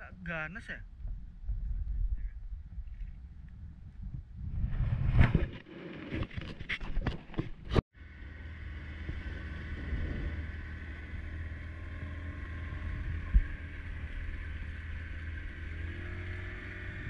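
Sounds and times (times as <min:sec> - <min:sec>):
wind on microphone: 0:00.7 - 0:07.8, 0:08.8 - 0:17.0
boat engine humming: 0:07.9 - 0:17.0
engine whine: 0:07.9 - 0:17.0.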